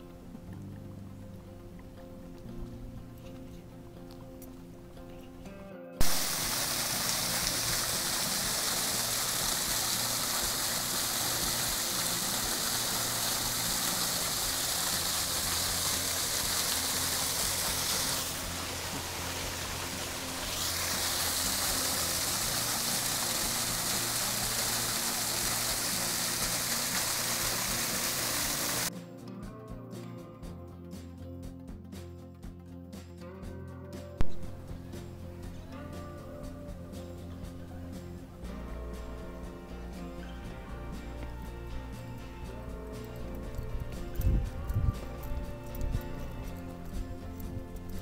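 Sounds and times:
background music: 0.0 - 48.0
waterfall splashing into pool: 6.0 - 28.9.

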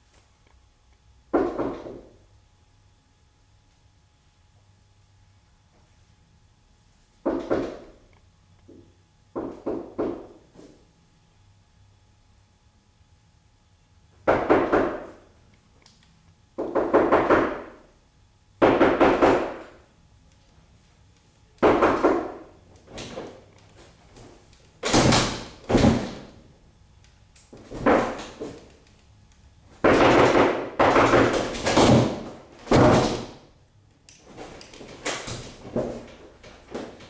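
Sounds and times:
wooden door slamming: 24.8 - 26.3, 27.6 - 28.6, 29.8 - 33.4.

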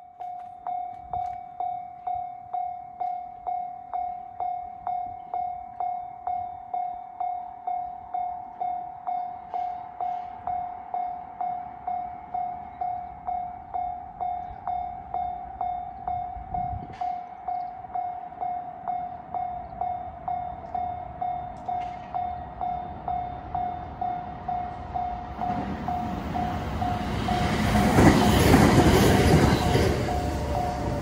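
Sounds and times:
level-crossing warning bell ringing: 0.0 - 31.0
passing train rumble: 0.2 - 31.0.

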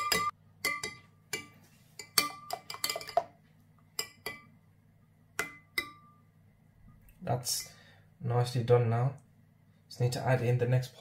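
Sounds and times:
metal spoon clinking on ceramic dish: 0.0 - 3.4, 4.0 - 4.5, 5.4 - 6.2.

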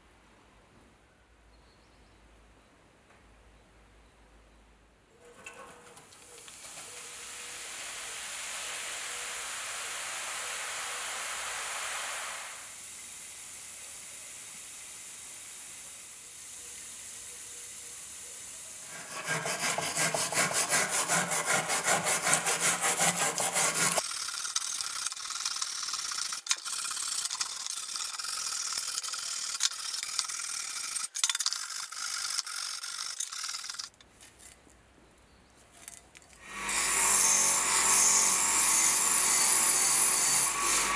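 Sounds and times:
fizzing hiss: 6.0 - 19.1
brush scrubbing metal: 18.8 - 24.8.

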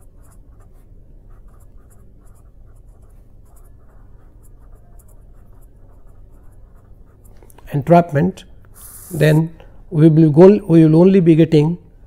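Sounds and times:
pen writing on paper: 0.0 - 7.4, 8.8 - 9.4.

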